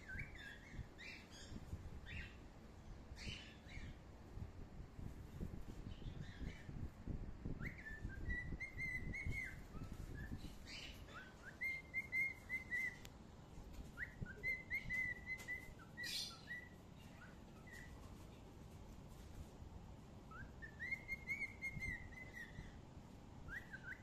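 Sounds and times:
bird chirping whistled notes: 0:07.5 - 0:13.0, 0:13.9 - 0:17.9, 0:20.3 - 0:22.8, 0:23.5 - 0:24.0.

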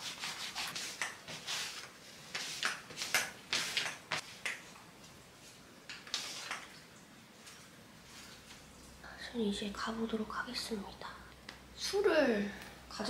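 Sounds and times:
lint roller rasping on clothing: 0:00.0 - 0:04.5.

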